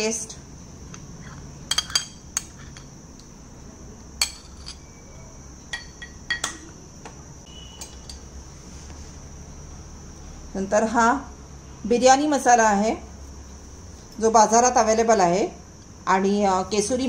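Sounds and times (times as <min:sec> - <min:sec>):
metal spoon clinking on ceramic: 0:01.3 - 0:02.9, 0:04.2 - 0:04.9, 0:05.7 - 0:06.6.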